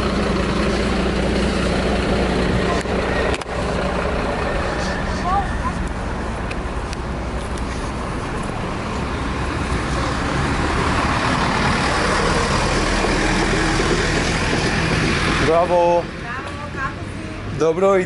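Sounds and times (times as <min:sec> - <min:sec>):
vehicle passing: 0:00.0 - 0:18.0.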